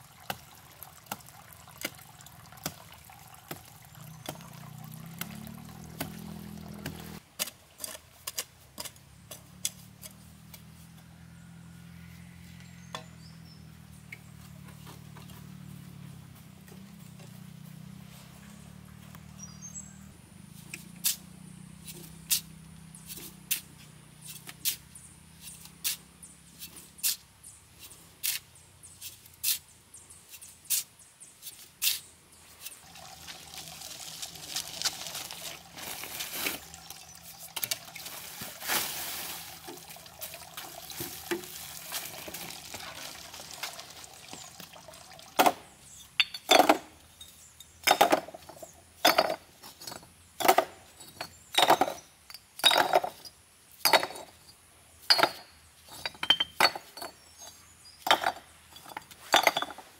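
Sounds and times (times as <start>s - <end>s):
bricks clinking into wheelbarrow: 45.4s - 59.9s.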